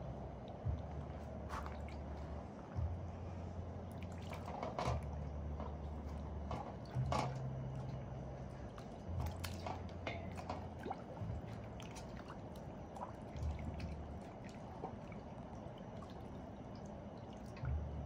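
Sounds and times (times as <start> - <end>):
low steady hum: 0.0 - 18.0
water sloshing in metal basin: 1.2 - 2.9, 3.9 - 18.0
wet squelches of chicken carcasses: 3.9 - 17.8.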